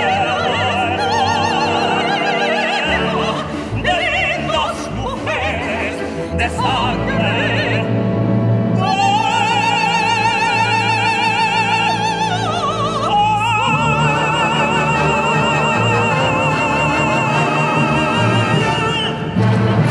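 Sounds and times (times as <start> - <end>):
operatic duet singing: 0.0 - 19.9
symphony orchestra: 0.0 - 19.9.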